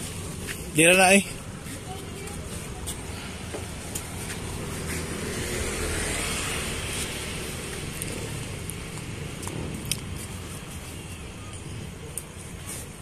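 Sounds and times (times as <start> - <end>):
road traffic rumble: 0.0 - 13.0
vehicle passing: 1.6 - 10.6.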